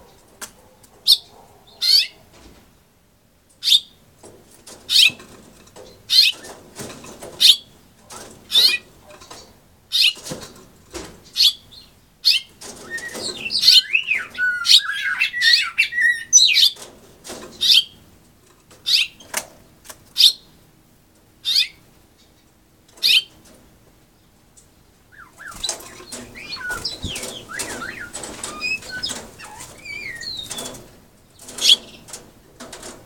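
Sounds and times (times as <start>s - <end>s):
finch chirping: 6.1s - 6.6s, 8.5s - 8.9s, 9.9s - 10.2s, 11.3s - 16.8s, 18.9s - 19.3s, 20.2s - 20.5s, 21.4s - 23.4s, 25.1s - 32.1s
bird twittering warble: 12.3s - 16.8s, 25.1s - 32.0s
wing flutters: 25.3s - 33.0s.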